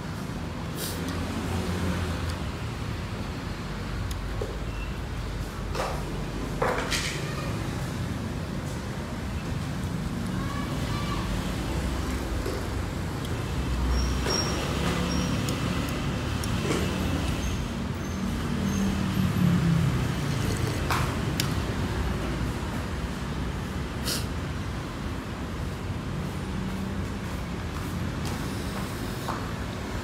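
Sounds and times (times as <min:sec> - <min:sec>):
street traffic rumble: 0:00.0 - 0:30.0.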